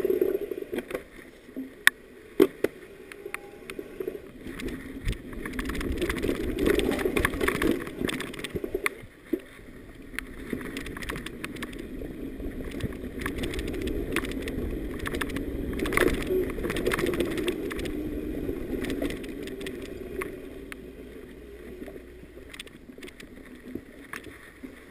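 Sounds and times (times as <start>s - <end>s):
bike tyres rumbling on dirt: 3.2s - 8.5s, 9.8s - 22.4s
bike clicking and rattling: 4.4s - 9.0s, 10.2s - 12.0s, 12.6s - 20.8s, 22.4s - 24.9s.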